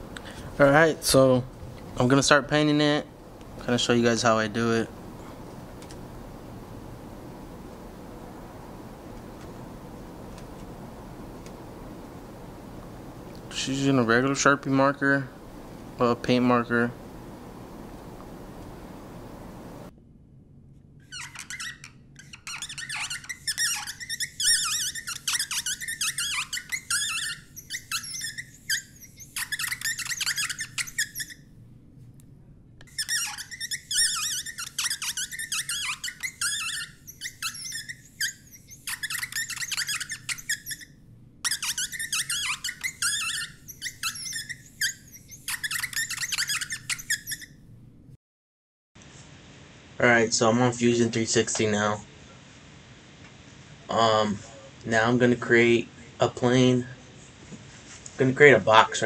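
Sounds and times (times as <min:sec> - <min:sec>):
marker tip squeaking on plastic: 0:21.0 - 0:31.5, 0:32.8 - 0:47.6.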